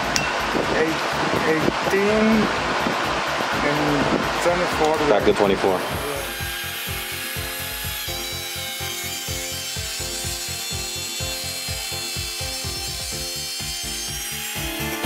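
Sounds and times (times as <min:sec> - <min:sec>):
background music with beat: 0:00.0 - 0:15.0
router cutting wood whine: 0:04.8 - 0:15.0.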